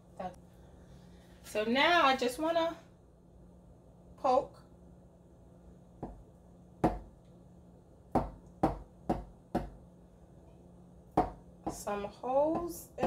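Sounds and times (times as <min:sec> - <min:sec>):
knife tapping through pastry: 0:12.4 - 0:13.0.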